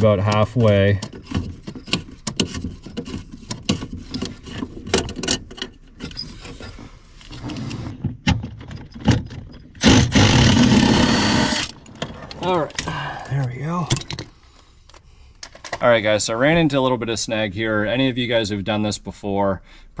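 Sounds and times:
cordless power tool running: 9.8s - 11.8s.

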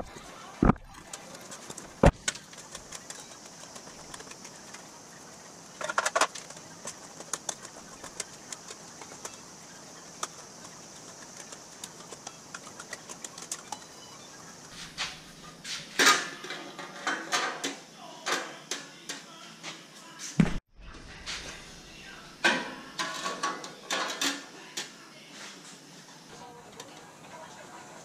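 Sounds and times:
metal sheet clicking on rollers: 0.8s - 14.0s.

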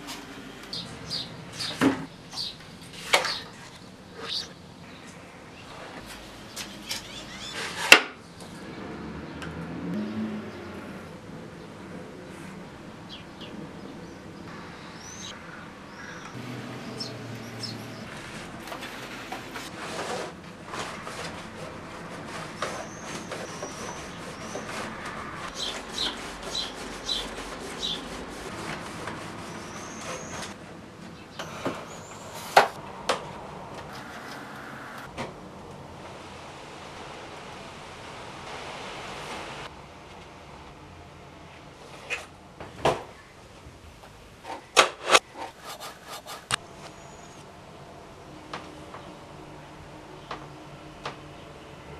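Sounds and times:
stiff paper rustling and creaking: 18.0s - 30.6s.

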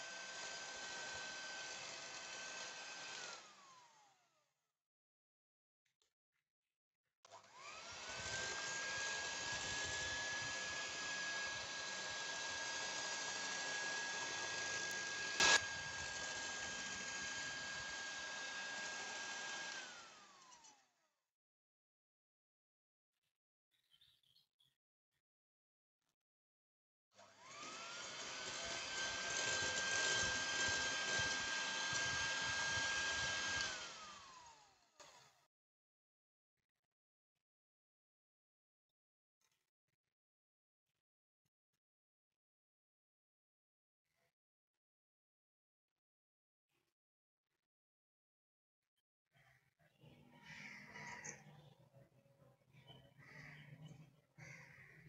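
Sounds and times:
electric mixer whining: 0.0s - 4.0s, 7.4s - 20.8s, 27.2s - 34.8s.

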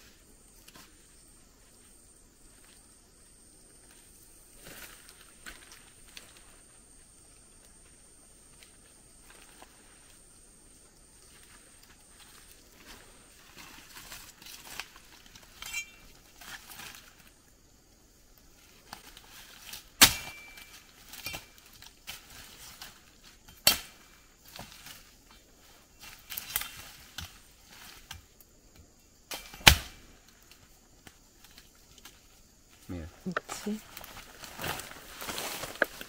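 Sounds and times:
metal blade chopping into vine: 20.0s - 21.4s, 23.6s - 23.9s, 29.3s - 30.0s.

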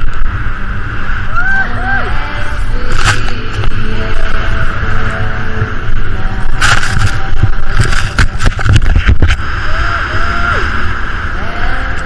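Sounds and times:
wind rushing over microphone: 0.0s - 12.0s
snowboard edges scraping snow: 6.6s - 9.3s.

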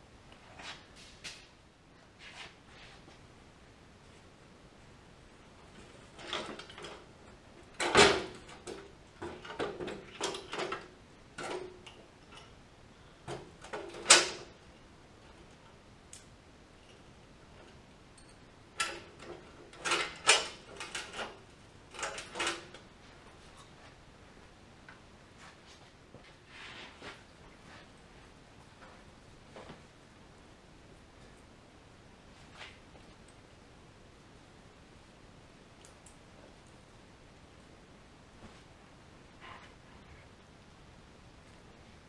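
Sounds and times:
tools and steel parts clanking: 18.1s - 22.9s.

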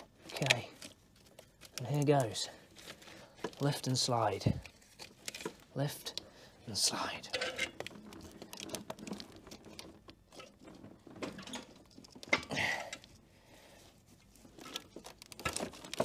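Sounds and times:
gearbox knocks and scrapes: 7.4s - 12.5s, 14.4s - 16.0s.

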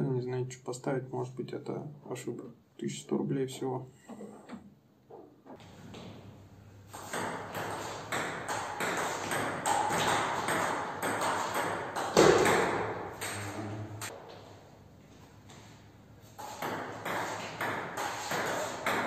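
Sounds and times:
ping pong ball hitting rackets: 6.9s - 13.4s, 16.3s - 19.0s
ping pong ball bouncing on table: 7.0s - 13.4s, 16.4s - 19.0s.

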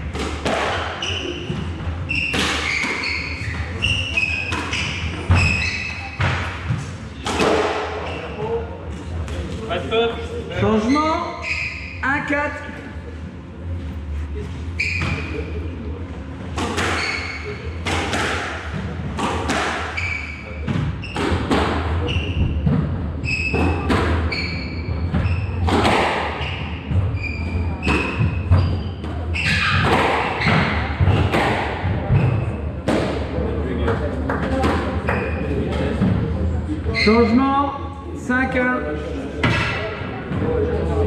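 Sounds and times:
squash ball hitting rackets and walls: 0.0s - 8.3s, 16.5s - 36.2s
shoes squeaking on wooden floor: 1.0s - 6.9s, 16.9s - 17.6s, 24.3s - 25.6s, 26.4s - 30.9s.

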